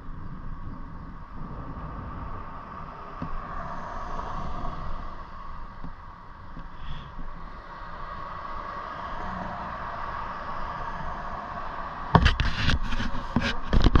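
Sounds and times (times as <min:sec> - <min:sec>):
electric scooter riding hum: 0:00.0 - 0:14.0
wind noise: 0:00.0 - 0:14.0
thumps on the microphone: 0:12.2 - 0:14.0.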